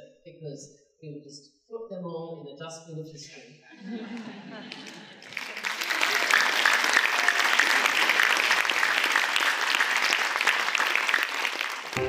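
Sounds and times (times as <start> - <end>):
large audience applauding: 4.7 - 12.0.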